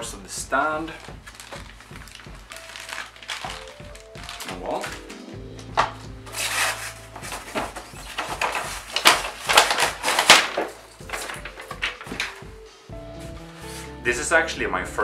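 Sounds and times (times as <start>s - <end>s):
hands scraping polystyrene foam: 6.3s - 10.6s.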